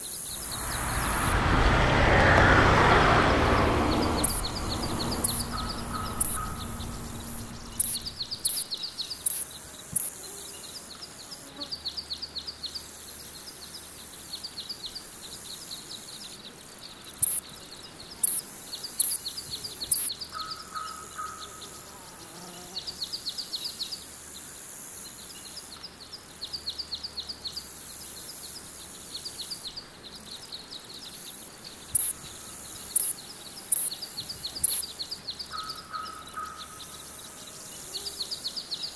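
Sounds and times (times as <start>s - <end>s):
insects stridulating: 0.0s - 9.6s
low rumble: 0.4s - 8.4s
bird calls: 3.6s - 8.6s, 34.1s - 37.3s.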